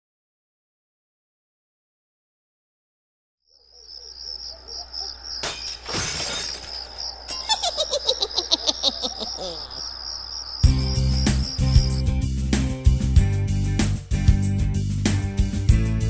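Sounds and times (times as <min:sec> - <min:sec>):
crickets chirping: 0:03.5 - 0:13.0.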